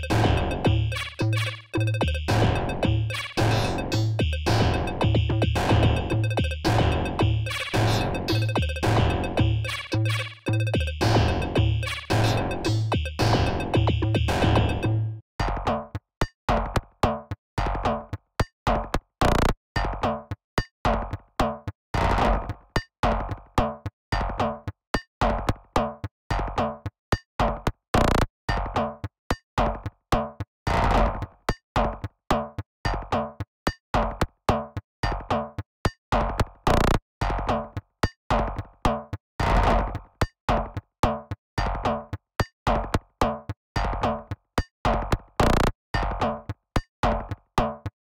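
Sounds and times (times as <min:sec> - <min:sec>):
sharp electronic percussion hits: 0:00.0 - 0:15.0
glitchy synth pattern: 0:00.0 - 0:15.1
low synth tone: 0:00.0 - 0:15.2.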